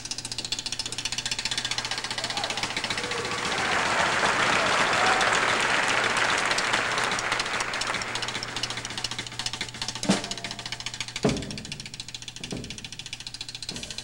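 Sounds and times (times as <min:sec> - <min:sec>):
snare drum roll: 0:01.7 - 0:11.7.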